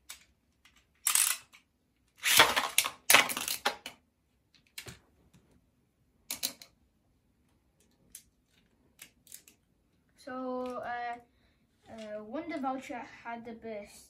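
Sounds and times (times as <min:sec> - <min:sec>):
plastic clicks: 0:06.3 - 0:06.8, 0:07.8 - 0:09.6.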